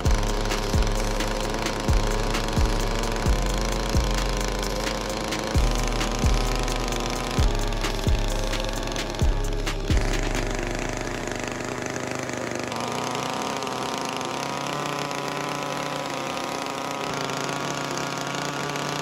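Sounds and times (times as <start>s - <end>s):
chainsaw cutting wood: 0.0s - 19.0s.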